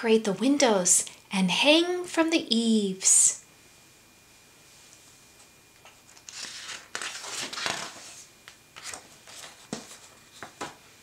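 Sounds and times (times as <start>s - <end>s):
paper page rustling: 5.8s - 10.8s.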